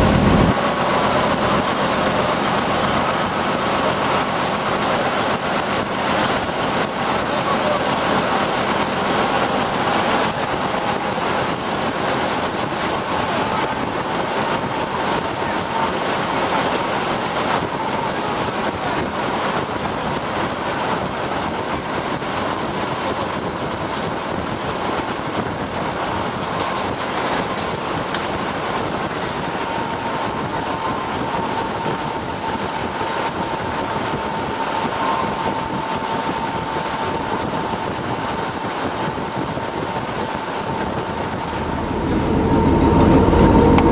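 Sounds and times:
diesel engine running: 0.0 - 43.9
train wheels on track: 0.0 - 43.9
faint steady whine: 26.2 - 43.9.

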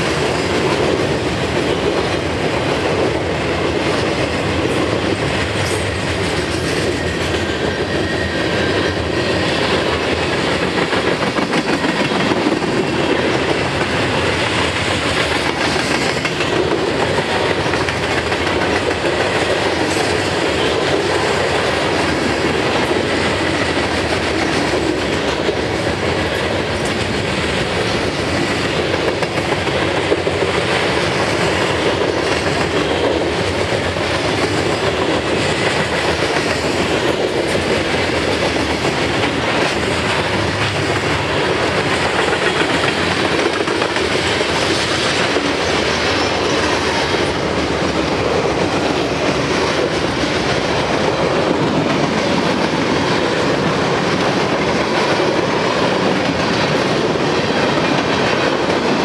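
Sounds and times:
train wheels rolling on rails: 0.0 - 59.0.

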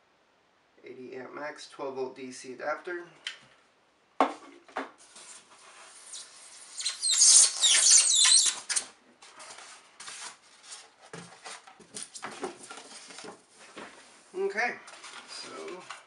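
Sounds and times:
packing insert squeaking: 5.9 - 9.0.

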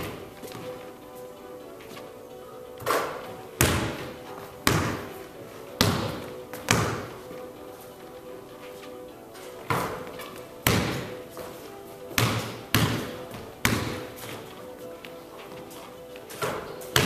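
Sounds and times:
basketball bouncing on wooden floor: 2.8 - 5.2, 5.8 - 7.2, 9.7 - 11.5, 12.1 - 14.4.

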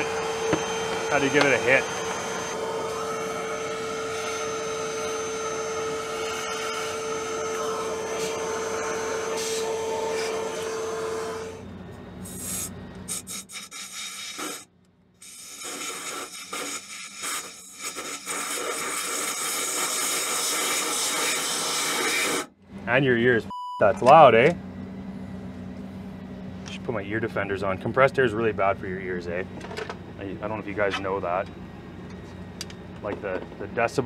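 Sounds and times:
small vacuum humming: 0.0 - 22.6, 24.1 - 34.0
compressed air hissing: 6.4 - 11.6, 12.2 - 22.5.

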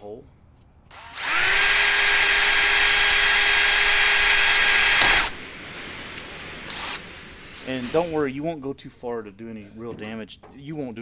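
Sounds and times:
cordless drill drilling into metal: 0.9 - 5.4, 6.7 - 7.0.

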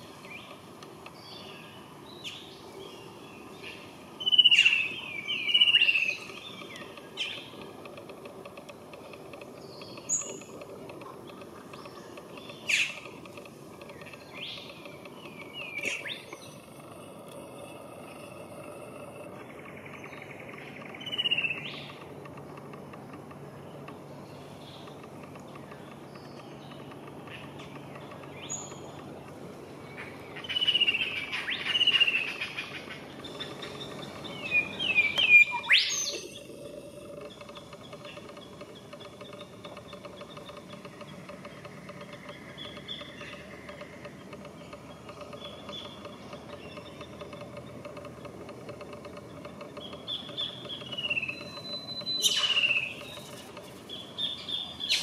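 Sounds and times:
birds whistling: 1.2 - 7.6, 11.8 - 13.1, 14.0 - 16.6, 19.6 - 22.0, 29.9 - 36.6, 49.7 - 55.0.

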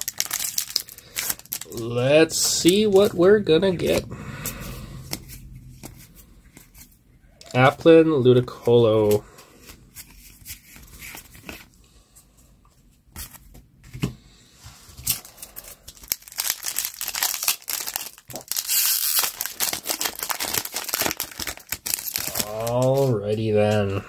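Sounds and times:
foil wrapper crinkling and tearing: 0.0 - 4.0, 15.0 - 23.3.

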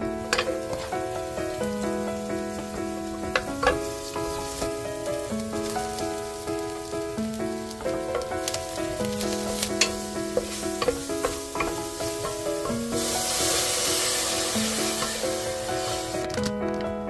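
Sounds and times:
spatula stirring frying food: 0.0 - 16.3
water hissing in hot pot: 0.0 - 16.4
background music with simple melody: 0.0 - 17.0
spatula clicking on pot: 8.1 - 12.8.

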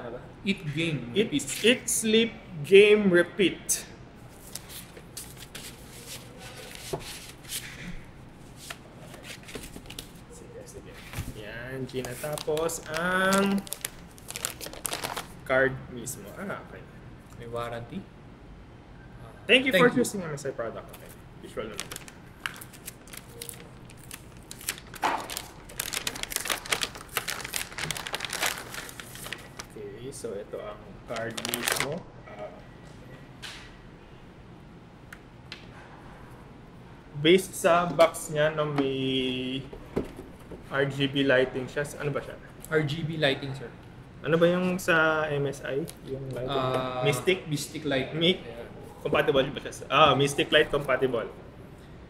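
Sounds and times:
paper and cardboard rustling: 4.4 - 7.8, 8.4 - 10.3, 10.9 - 15.3, 21.0 - 29.8, 31.1 - 32.0
plastic bag crinkling: 11.9 - 15.5, 21.6 - 29.8, 31.1 - 32.0.

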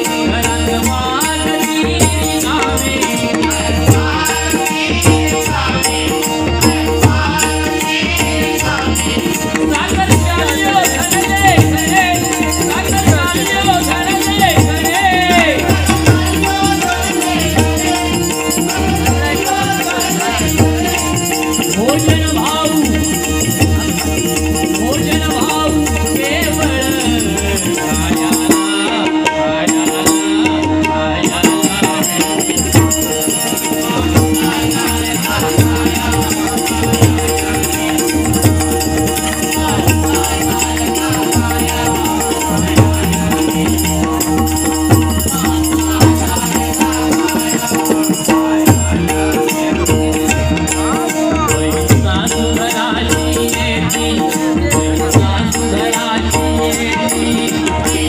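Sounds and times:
hand drums playing rhythm: 0.0 - 58.0
harmonium holding notes: 0.0 - 58.0.

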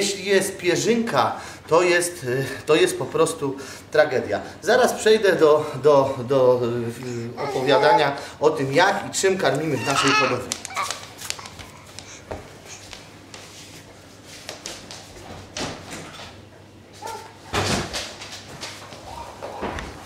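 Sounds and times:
door shutting with a thud: 17.5 - 18.1.

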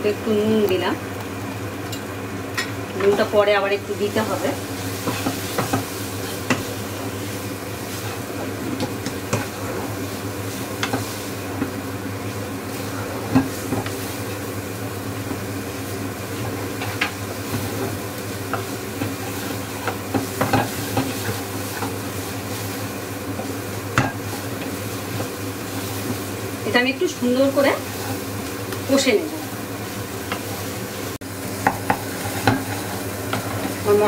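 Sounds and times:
food sizzling in oil: 0.0 - 34.0
spatula scraping a pan: 4.8 - 11.7, 16.4 - 26.3, 27.7 - 28.5, 31.6 - 34.0
spatula tapping on pan: 31.6 - 32.7.

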